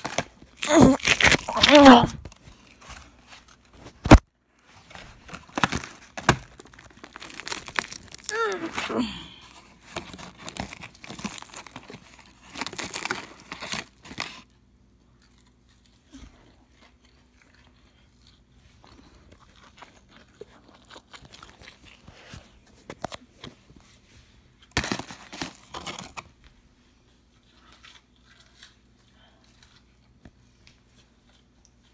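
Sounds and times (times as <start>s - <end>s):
paper bag and cardboard crinkling: 0.0s - 14.5s.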